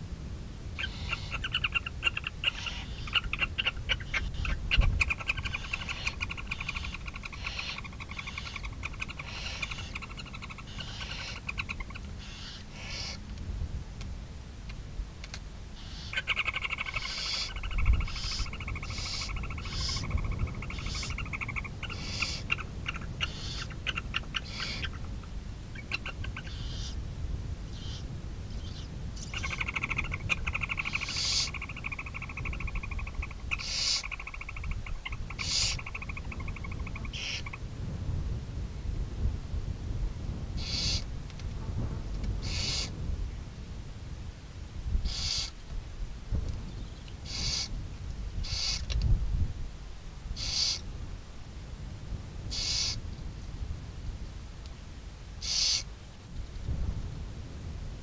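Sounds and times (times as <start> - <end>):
owl hissing bursts: 0.8 - 1.5, 2.4 - 3.2, 5.4 - 13.2, 15.8 - 22.6, 23.3 - 23.7, 24.4 - 25.0, 26.5 - 27.0, 30.6 - 32.6, 33.5 - 34.5, 35.4 - 36.1, 37.1 - 37.5, 40.6 - 41.1, 42.4 - 43.0, 45.0 - 45.6, 47.2 - 47.7, 48.4 - 48.9, 50.4 - 50.8, 52.5 - 53.0, 55.4 - 55.9
barn owls chittering: 0.8 - 13.2, 15.8 - 27.0, 27.7 - 37.7, 40.6 - 41.1, 42.4 - 43.0, 45.0 - 45.6, 47.2 - 47.8, 48.4 - 49.0, 50.4 - 50.8, 52.5 - 53.0, 55.4 - 55.9.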